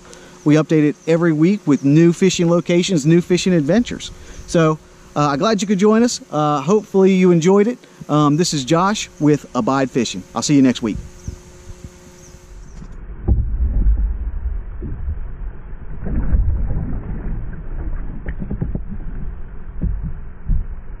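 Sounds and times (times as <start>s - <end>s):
wind rumbling on microphone: 10.7s - 21.0s
water sounds: 12.6s - 20.8s.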